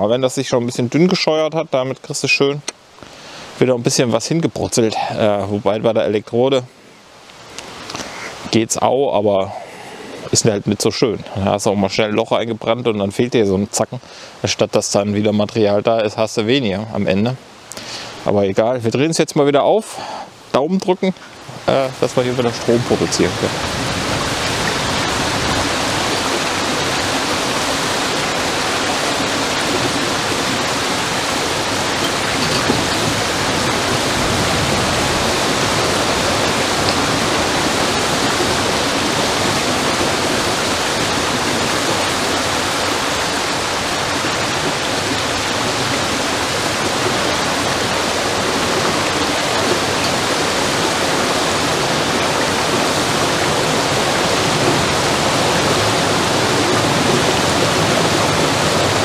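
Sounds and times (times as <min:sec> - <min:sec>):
water rushing through weir: 0:21.1 - 0:59.0.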